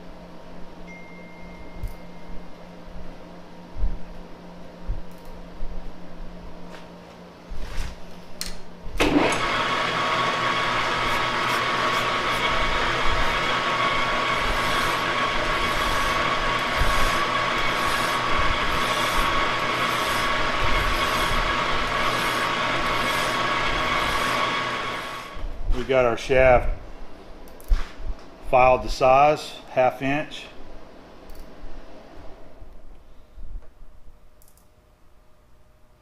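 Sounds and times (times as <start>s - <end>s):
lathe running with whine: 9.0s - 25.5s
file rasping on metal shaft: 14.0s - 25.2s.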